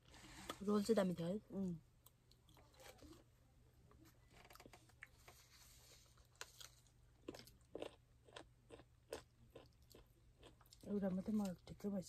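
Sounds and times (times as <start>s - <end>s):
people chewing: 6.2s - 10.8s.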